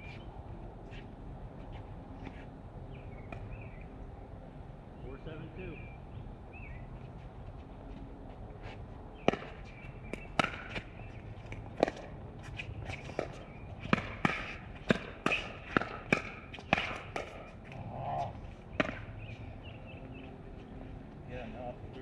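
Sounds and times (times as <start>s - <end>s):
ball bouncing on court: 9.2s - 12.2s, 13.1s - 17.6s, 18.8s - 19.2s.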